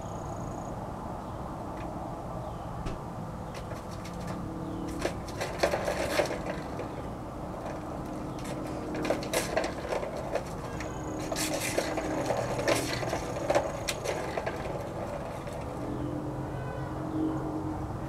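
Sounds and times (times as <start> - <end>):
kitten scratching plastic toy: 3.5 - 15.9.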